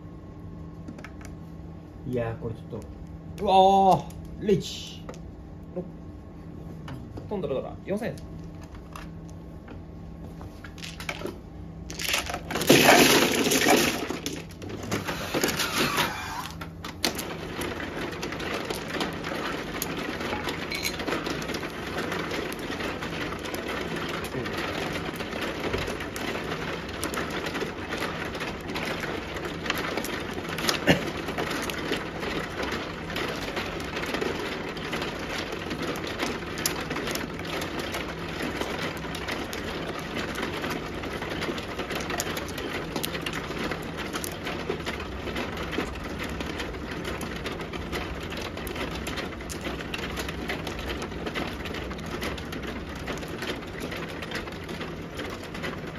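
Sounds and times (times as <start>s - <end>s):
shuffling mechanism churning: 10.3s - 55.9s
mahjong tiles clattering: 10.7s - 48.0s.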